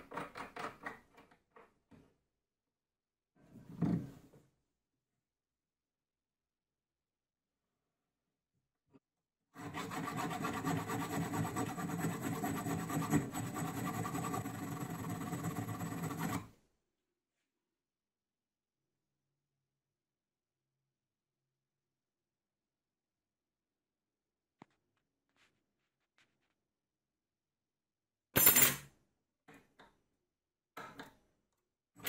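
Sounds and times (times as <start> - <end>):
file rasping on metal: 9.6 - 16.5.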